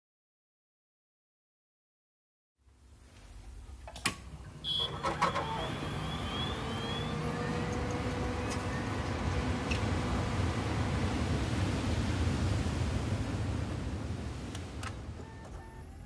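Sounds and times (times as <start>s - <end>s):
low rumbling noise: 3.3s - 16.0s
short high beep: 4.6s - 7.2s
faint chirps: 4.6s - 7.6s.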